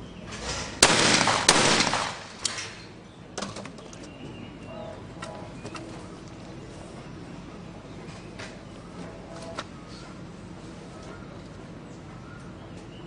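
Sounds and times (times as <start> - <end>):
shotgun shots: 0.6 - 2.8.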